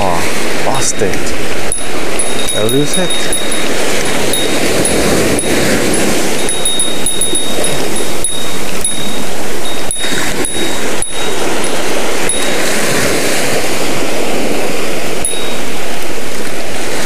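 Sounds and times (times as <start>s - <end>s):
surf on rocky beach: 0.0s - 17.0s
wind on microphone: 0.0s - 17.0s
small bell jingling: 1.7s - 13.2s, 15.2s - 15.8s.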